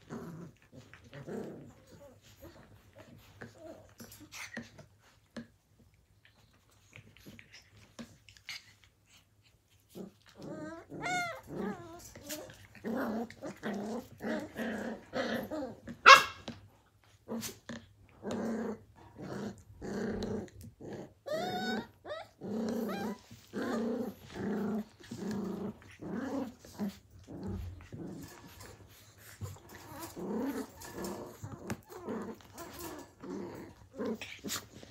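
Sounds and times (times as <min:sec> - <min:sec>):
puppy growls: 0:00.0 - 0:34.9
puppy whines and yips: 0:10.6 - 0:12.4, 0:21.2 - 0:23.3
puppy yelp: 0:16.0 - 0:16.4.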